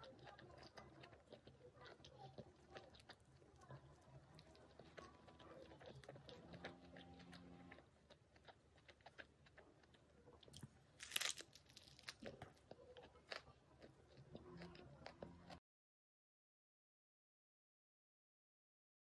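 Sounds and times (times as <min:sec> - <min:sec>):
food wrap crinkling and crunching: 0:08.4 - 0:14.7.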